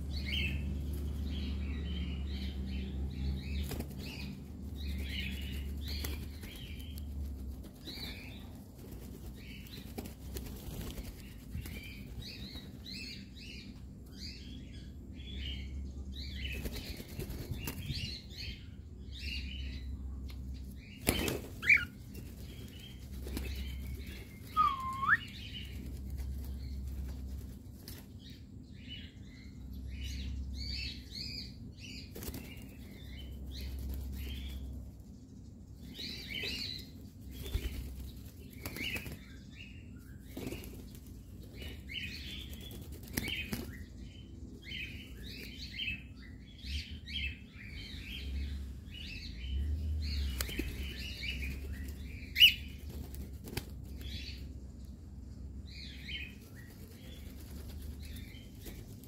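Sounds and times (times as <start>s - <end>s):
wings fluttering: 3.2s - 13.2s, 16.4s - 18.2s, 20.8s - 28.4s, 32.0s - 35.1s, 35.8s - 45.8s, 50.1s - 54.6s, 55.8s - 59.0s
cockatiels chirping: 24.0s - 25.4s.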